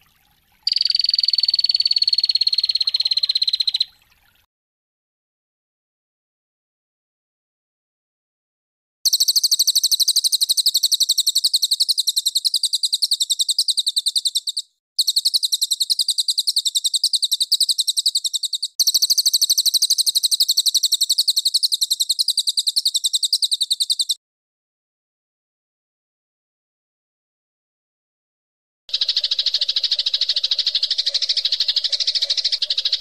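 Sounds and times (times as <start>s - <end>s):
rapid high-pitched bird chirps: 0.7s - 4.0s, 9.1s - 24.2s, 28.9s - 33.0s.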